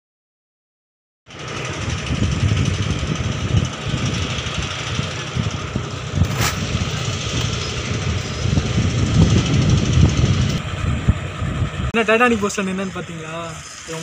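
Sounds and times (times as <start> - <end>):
low rumbling noise: 1.3 - 14.0.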